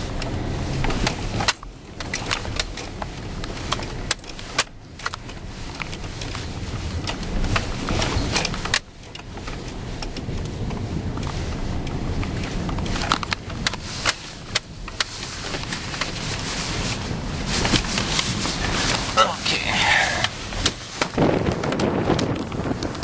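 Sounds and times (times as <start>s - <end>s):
engine and tyre rumble: 0.0s - 23.0s.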